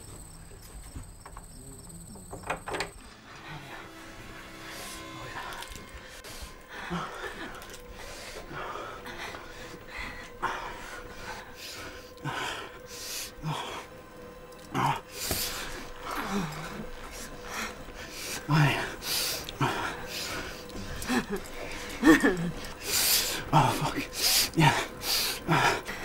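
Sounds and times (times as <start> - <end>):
low moan: 3.0 - 26.0
heavy breathing in gasps: 14.6 - 26.0.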